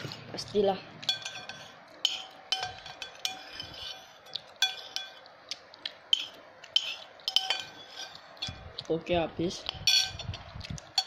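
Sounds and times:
metal spoon scraping ceramic plate: 1.0s - 5.2s, 6.1s - 8.7s, 9.8s - 11.0s.

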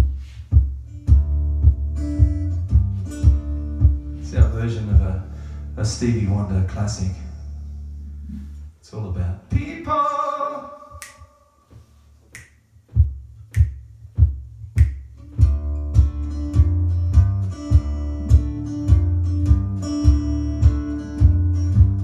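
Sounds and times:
guitar playing: 0.0s - 6.4s, 14.6s - 22.0s
finger snaps: 10.9s - 11.4s, 12.2s - 12.6s, 13.4s - 13.9s, 14.7s - 15.3s.

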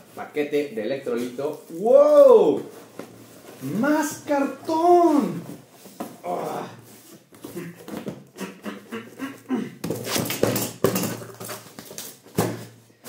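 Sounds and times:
cardboard and tape rustling: 1.1s - 8.3s, 9.8s - 12.8s
man grunting: 6.2s - 6.8s, 7.5s - 9.8s.

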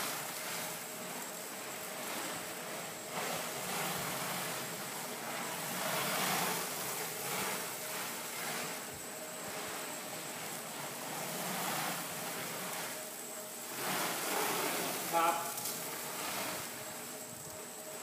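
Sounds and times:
stretch film rustling off roll: 2.0s - 17.2s.

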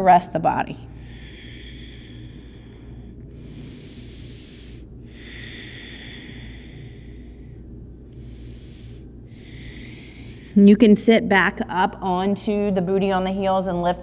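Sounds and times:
steady low hum: 0.0s - 14.0s
woman breathing slowly: 0.7s - 10.8s.

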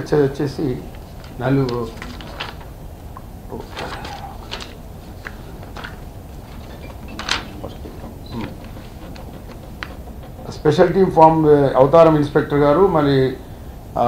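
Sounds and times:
room hum: 0.0s - 14.0s
short rustles and clicks: 3.6s - 10.6s.

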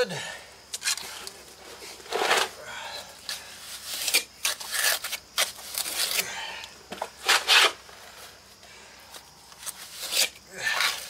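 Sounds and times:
gritty scraping of broken concrete: 0.7s - 2.6s, 3.3s - 6.3s, 6.9s - 7.9s.

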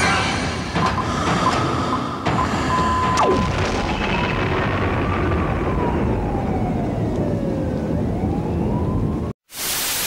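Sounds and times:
siren-like wailing tone: 3.2s - 9.3s
static hiss: 9.4s - 10.0s.

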